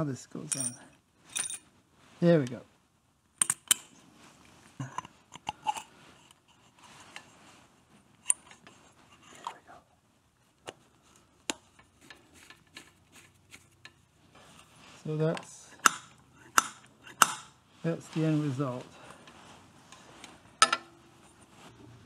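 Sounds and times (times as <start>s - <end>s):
metal clicks and taps: 3.4s - 3.8s.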